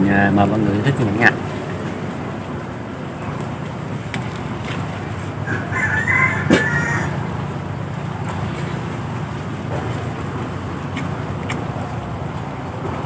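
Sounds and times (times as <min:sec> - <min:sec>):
rooster crowing: 0:05.4 - 0:07.5.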